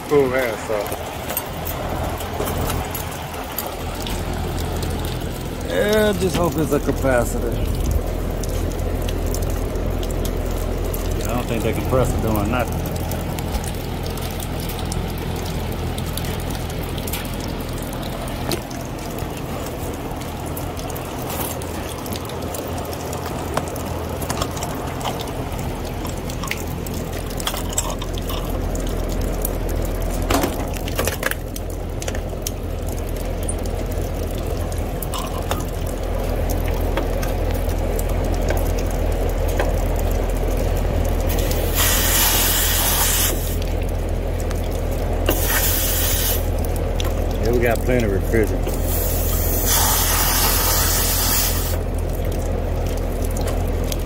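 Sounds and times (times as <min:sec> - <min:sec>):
condenser fan humming: 0:00.0 - 0:54.0
water pattering: 0:00.0 - 0:54.0
loud spraying hiss: 0:41.5 - 0:43.6, 0:45.3 - 0:46.5, 0:48.9 - 0:51.8.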